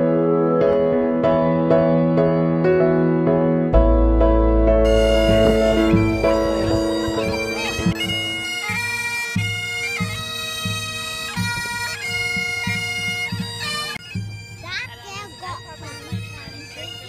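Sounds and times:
piano backing track: 0:00.0 - 0:09.7
bagpipes playing over drone: 0:04.8 - 0:17.0.

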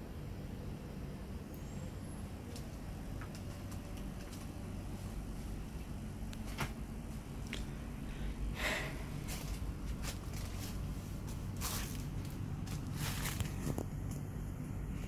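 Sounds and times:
low room hum: 0:00.0 - 0:15.0
faint clicks and rustles: 0:02.4 - 0:07.8, 0:09.2 - 0:15.0.

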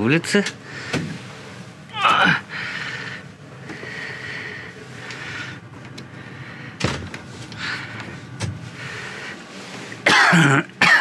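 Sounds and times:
man's falling vocal sound: 0:01.9 - 0:02.5.

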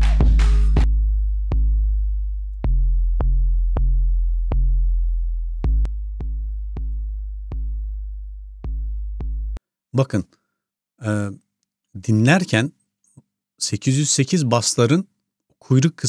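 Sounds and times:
booming sub-bass notes: 0:00.0 - 0:09.6.

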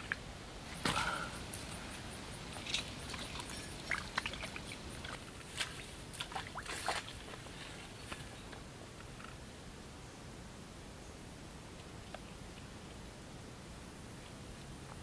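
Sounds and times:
water splashes and drips: 0:02.5 - 0:07.4.

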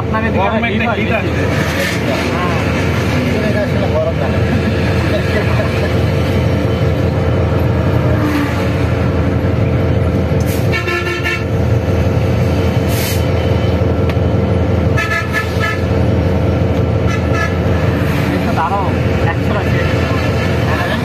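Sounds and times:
vehicle driving at speed: 0:00.0 - 0:10.7, 0:11.4 - 0:21.0
vehicle horn toots: 0:10.7 - 0:11.5, 0:15.0 - 0:15.9.

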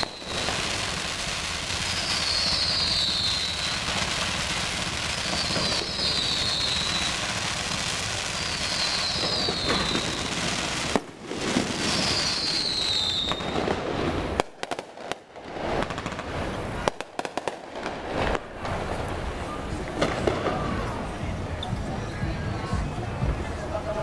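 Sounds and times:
firework whistles falling: 0:00.0 - 0:14.8
firework bangs: 0:00.0 - 0:21.6
street noise: 0:00.0 - 0:24.0.

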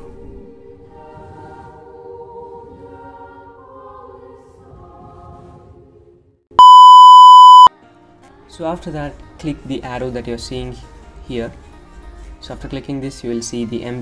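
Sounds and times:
slow choir-like music: 0:00.0 - 0:06.4
high test tone beep: 0:06.6 - 0:07.7.

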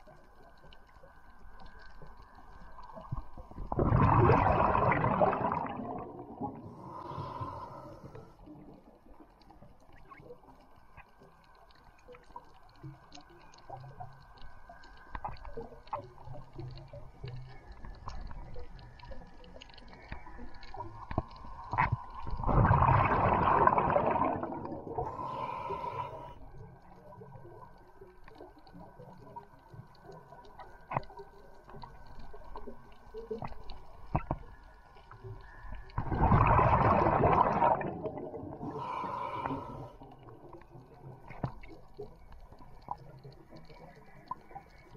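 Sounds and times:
underwater clicks and crackles: 0:00.0 - 0:44.9
rush of bubbling air: 0:03.4 - 0:08.1, 0:21.7 - 0:26.3, 0:35.9 - 0:40.0.

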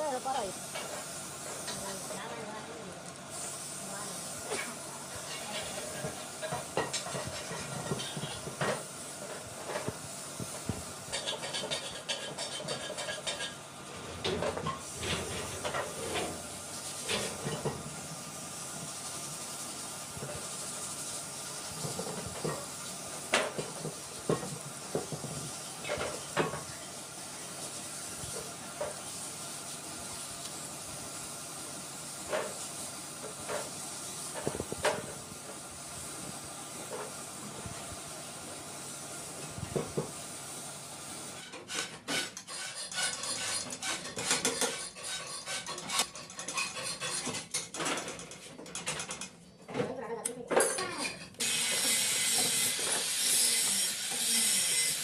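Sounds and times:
rapid metallic clicking and rattling: 0:11.0 - 0:13.6, 0:42.1 - 0:49.4.

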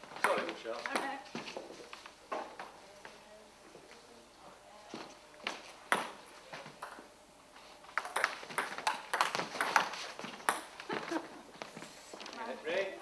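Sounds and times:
table tennis ball bouncing on table: 0:05.9 - 0:06.2, 0:08.0 - 0:10.7
table tennis ball hitting bats: 0:05.9 - 0:06.2, 0:07.9 - 0:10.9.

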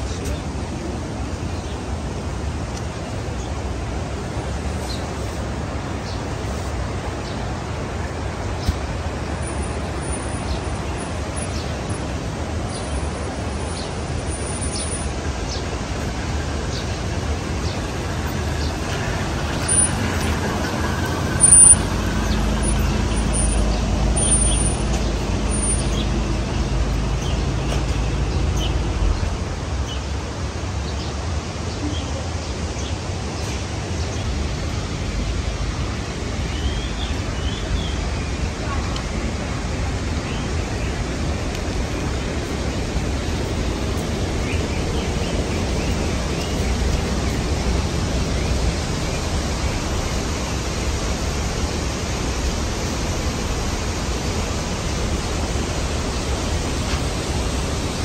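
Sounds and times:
steady rushing background noise: 0:00.0 - 0:58.0
vehicle engine running: 0:07.8 - 0:29.4.

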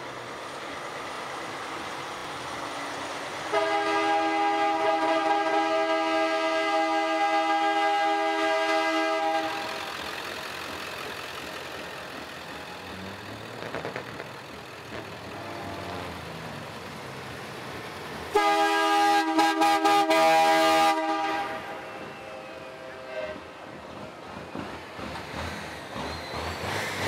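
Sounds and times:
truck engines passing: 0:00.0 - 0:27.0
truck air horns: 0:03.5 - 0:09.9, 0:18.3 - 0:23.6.

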